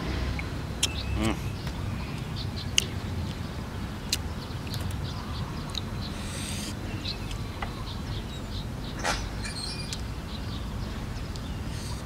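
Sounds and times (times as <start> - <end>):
steady low rumble: 0.0 - 9.0.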